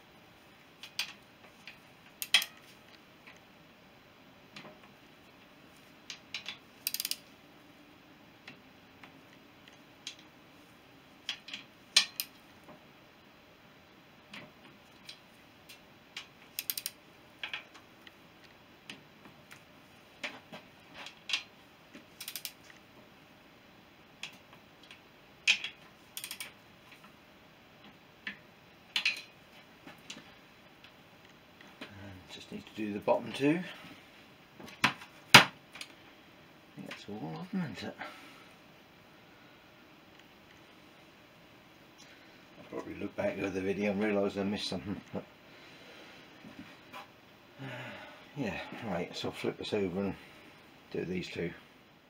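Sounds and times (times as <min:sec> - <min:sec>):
ratchet wrench ticking and clicking: 0:06.8 - 0:07.2, 0:16.6 - 0:17.0, 0:22.2 - 0:22.6, 0:26.2 - 0:26.5.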